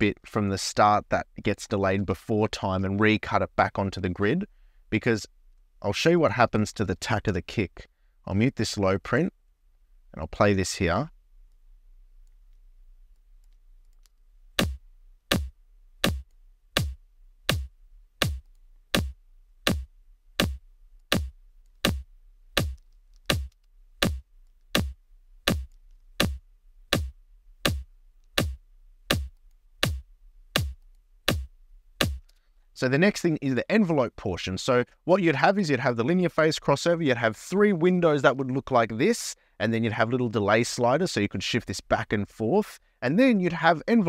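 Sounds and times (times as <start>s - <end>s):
electronic kick drum hits: 14.6s - 16.2s, 16.8s - 18.4s, 19.0s - 22.0s, 22.6s - 24.2s, 24.8s - 26.4s, 28.4s - 30.0s, 30.6s - 32.2s.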